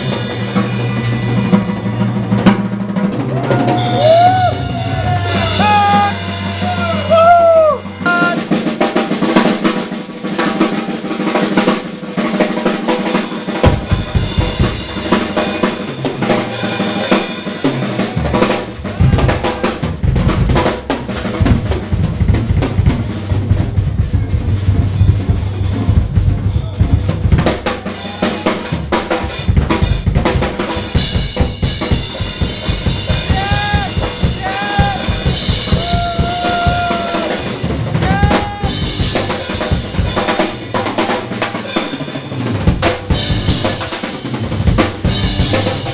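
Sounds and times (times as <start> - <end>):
heavy low bass: 0.0 - 8.5, 18.0 - 41.6
live rock band: 0.0 - 45.9.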